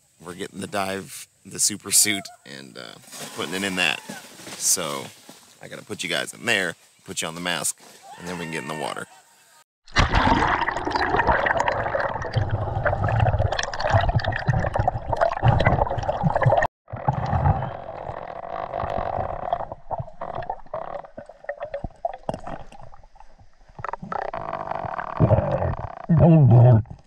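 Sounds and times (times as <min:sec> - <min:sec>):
underwater bubbling and gurgling: 0:09.9 - 0:27.0.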